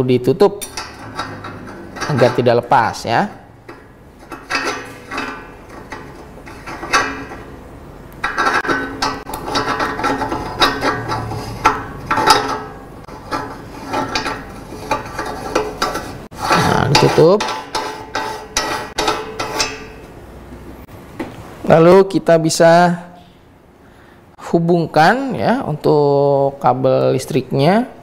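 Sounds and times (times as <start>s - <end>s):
metal grinder parts clinking: 0.6s - 2.5s, 3.6s - 7.5s, 8.2s - 20.0s.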